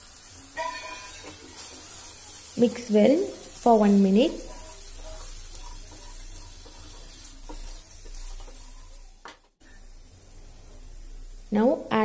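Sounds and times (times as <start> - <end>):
food sizzling in hot oil: 0.0 - 12.0
wooden spatula scraping a pan: 0.6 - 2.2, 3.4 - 9.5.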